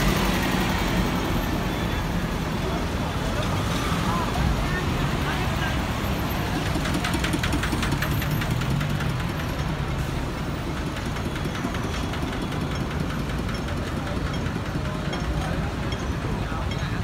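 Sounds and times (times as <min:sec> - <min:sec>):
lorry engines idling: 0:00.0 - 0:17.0
engine clatter: 0:04.8 - 0:17.0.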